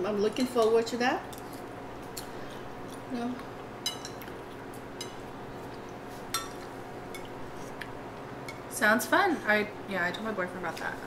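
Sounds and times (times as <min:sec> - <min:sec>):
chopsticks clinking on ceramic plates: 0:03.8 - 0:04.4, 0:05.0 - 0:07.3.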